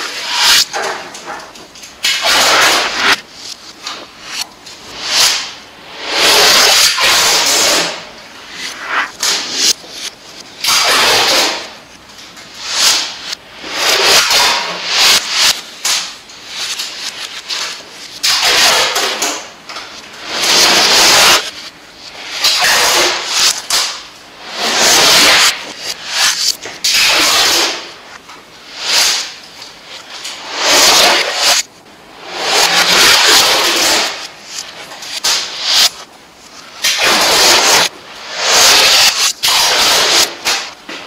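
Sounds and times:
adhesive tape ripping off roll: 36.8s - 40.7s.

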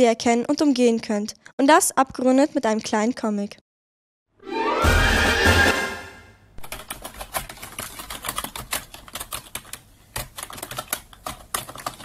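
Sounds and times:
computer keyboard typing: 6.6s - 12.0s.

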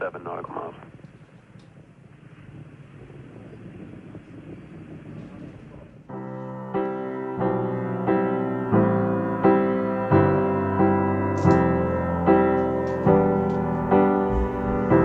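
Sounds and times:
slow piano piece: 6.1s - 15.0s.

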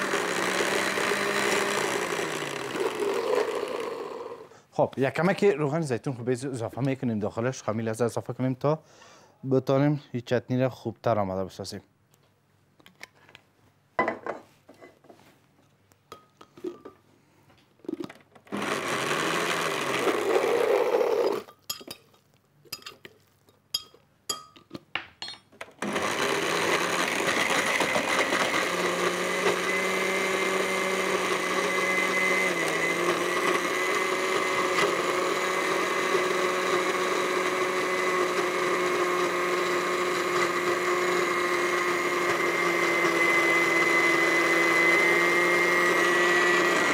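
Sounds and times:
blender motor running: 0.0s - 4.5s, 18.5s - 21.5s, 25.8s - 46.9s.

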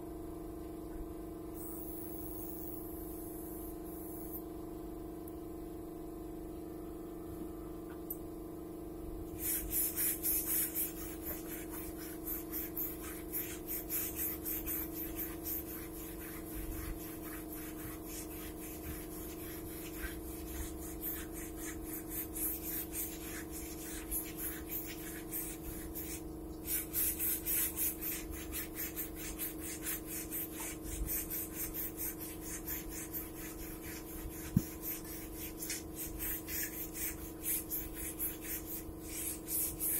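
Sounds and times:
steady low hum: 0.0s - 39.9s
paint spray gun hissing: 9.4s - 39.9s.

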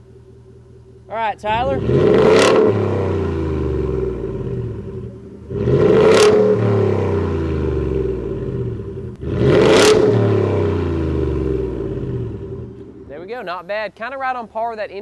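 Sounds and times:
truck engine revving: 1.4s - 13.1s.

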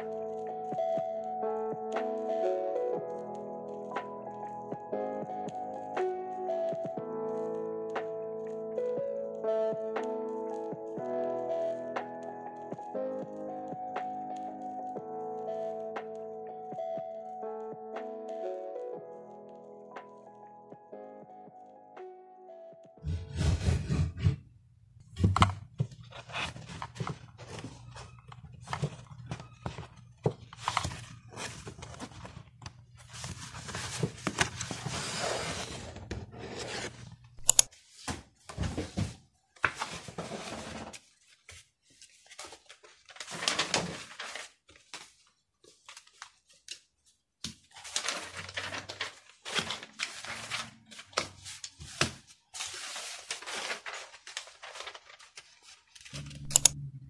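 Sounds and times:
paper rustling and sliding: 30.6s - 37.1s, 37.7s - 46.6s, 47.7s - 56.2s
low steady hum: 56.2s - 57.0s.

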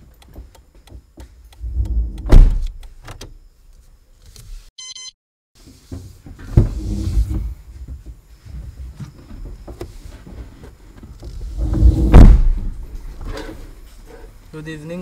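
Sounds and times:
car door opening: 1.6s - 3.4s
thump in car cabin: 2.2s - 2.7s, 11.8s - 12.9s
short electronic beep: 4.8s - 5.2s
knocks and rustling: 5.6s - 14.1s.

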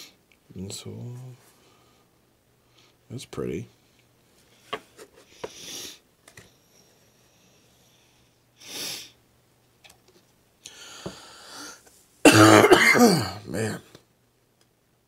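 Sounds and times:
person sniffing: 5.2s - 6.0s, 8.6s - 9.2s.

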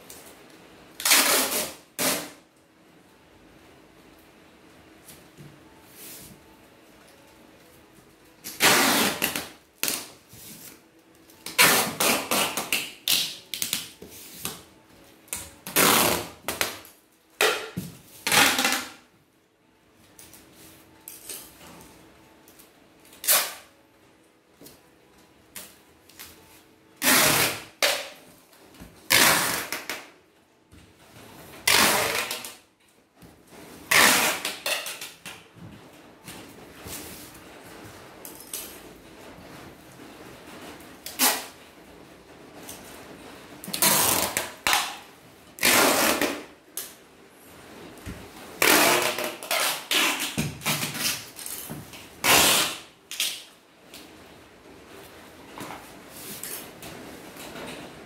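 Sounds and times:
packing tape screeching off roll: 1.0s - 2.4s, 8.4s - 10.1s, 11.4s - 13.8s, 15.3s - 16.8s, 18.2s - 19.0s, 23.2s - 23.7s, 27.0s - 28.2s, 29.1s - 30.1s, 31.6s - 32.6s, 33.9s - 35.2s, 41.0s - 41.6s, 43.7s - 46.5s, 48.6s - 51.4s, 52.2s - 53.5s.

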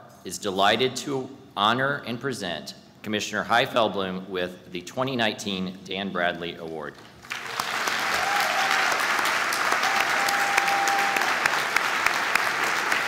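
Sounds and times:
audience applauding: 7.2s - 13.0s.

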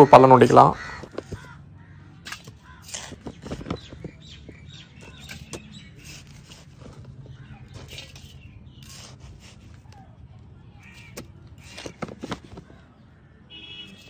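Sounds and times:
metal trowel scraping soil: 2.2s - 4.1s, 4.9s - 9.9s, 10.8s - 12.7s.

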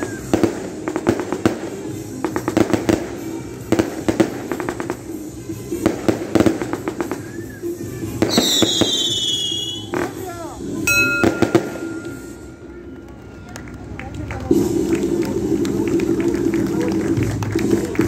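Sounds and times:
firecrackers banging: 0.0s - 13.2s
music playing: 0.0s - 13.8s.

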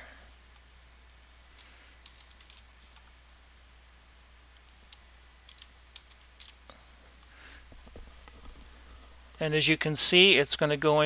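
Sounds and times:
faint keyboard typing: 0.2s - 3.2s, 4.5s - 8.7s.

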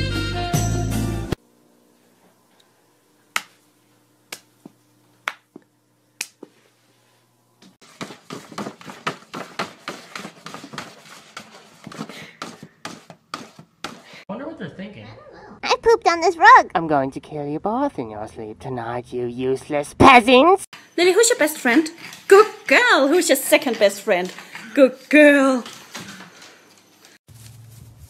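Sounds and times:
sharp snaps and clicks: 3.3s - 3.6s, 4.3s - 4.5s, 6.2s - 6.4s.

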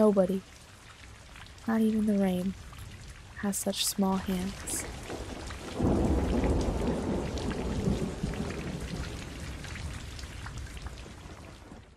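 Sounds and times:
rain falling: 0.0s - 11.9s
low rumble of thunder: 4.5s - 11.9s.

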